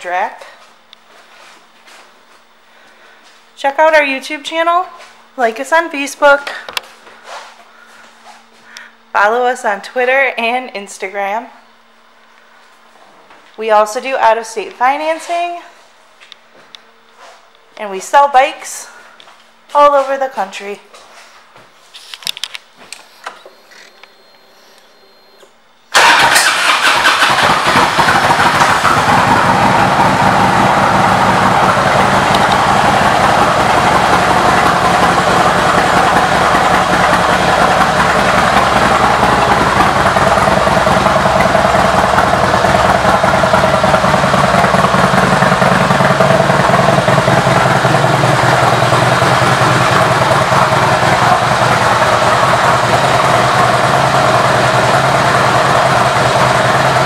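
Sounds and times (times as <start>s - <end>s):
motorcycle engine idling: 26.0s - 57.0s.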